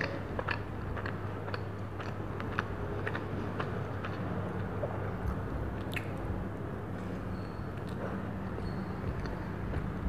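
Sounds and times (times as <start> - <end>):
chewing with wet mouth clicks: 0.0 - 6.3
steady low hum: 0.0 - 10.0.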